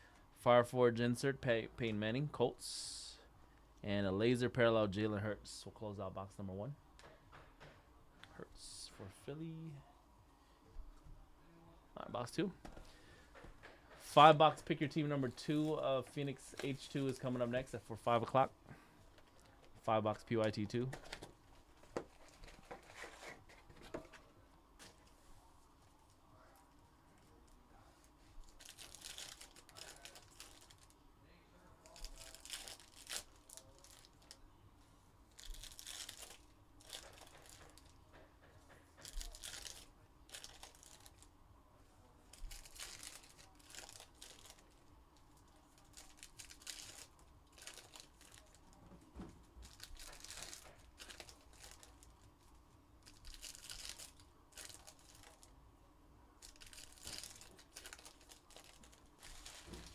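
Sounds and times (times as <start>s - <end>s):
foil wrappers tearing and crinkling: 28.5s - 30.9s, 31.9s - 34.4s, 35.3s - 37.9s, 39.1s - 41.2s, 42.3s - 44.8s, 45.7s - 48.6s, 49.6s - 52.1s, 53.0s - 55.5s, 56.4s - 59.9s.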